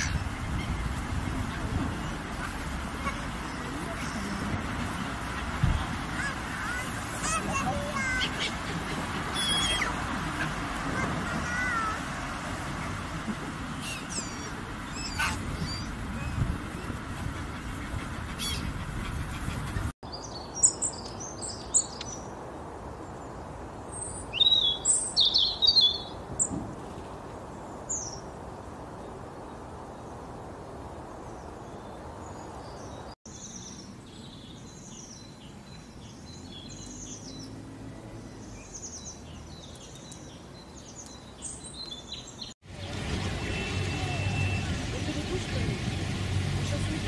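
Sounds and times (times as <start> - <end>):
songbirds chirping and twittering: 0.0 - 47.0
steady outdoor hiss: 0.0 - 47.0.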